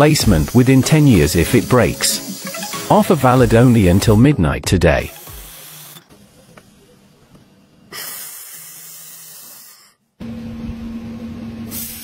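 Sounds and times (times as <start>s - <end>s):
laser welding hiss: 0.0s - 4.2s, 5.0s - 6.6s, 11.7s - 12.0s.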